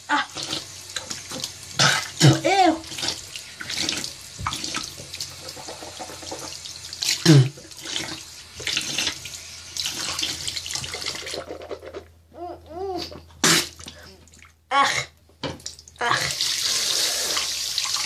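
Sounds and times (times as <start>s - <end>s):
tap water running into sink: 0.3s - 11.6s, 15.4s - 18.0s.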